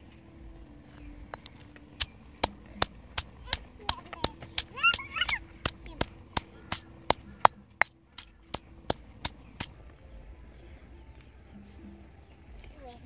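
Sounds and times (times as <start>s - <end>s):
pestle pounding in stone mortar: 1.4s - 9.8s.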